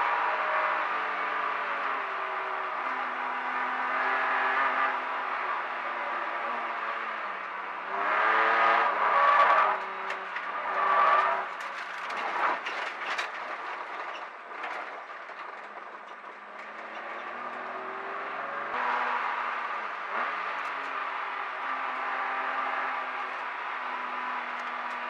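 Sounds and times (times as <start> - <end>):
car knocking and rattling: 9.1 - 25.0.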